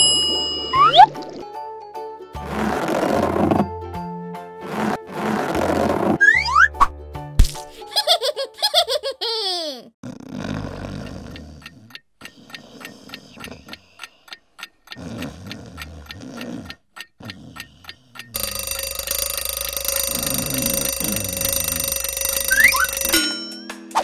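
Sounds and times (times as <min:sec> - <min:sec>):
clock ticking: 0:11.0 - 0:23.2
alarm bell ringing: 0:18.4 - 0:23.7.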